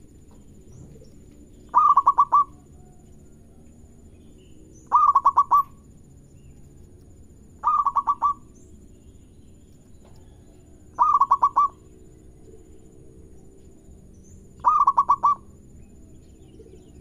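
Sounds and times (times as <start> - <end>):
dove cooing: 0.7 - 3.0, 4.9 - 5.8, 7.6 - 8.5, 11.0 - 12.8, 14.6 - 15.5, 16.5 - 17.0.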